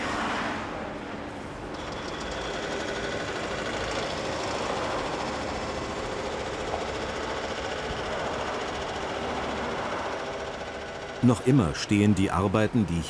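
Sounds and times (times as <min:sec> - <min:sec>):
heavy machinery rumbling: 0:01.2 - 0:13.0.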